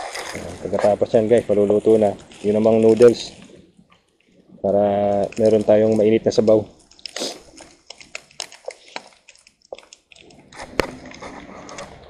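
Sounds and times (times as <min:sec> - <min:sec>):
fat spattering in a pan: 0:06.8 - 0:11.0.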